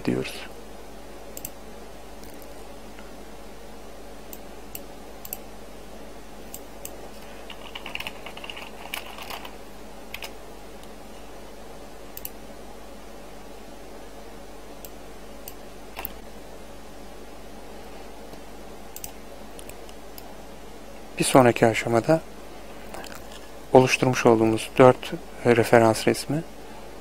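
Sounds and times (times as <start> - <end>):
steady low hum: 0.0 - 27.0
keyboard typing: 6.5 - 10.4.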